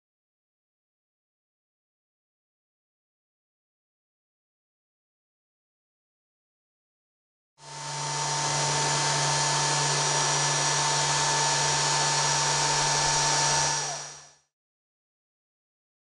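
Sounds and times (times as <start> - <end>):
router spindle whine: 7.6 - 14.5.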